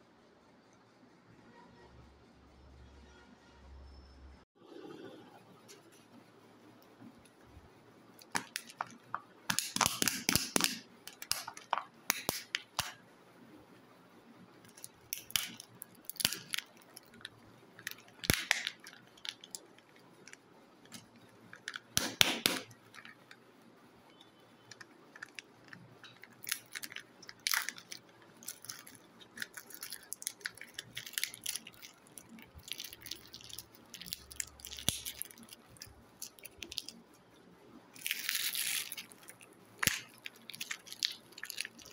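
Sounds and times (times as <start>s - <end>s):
plastic wrapping crinkling: 8.1s - 13.0s, 14.6s - 23.5s, 24.1s - 41.9s
plastic egg shells clicking: 8.2s - 13.0s, 14.7s - 23.4s, 24.2s - 37.2s, 38.0s - 41.9s.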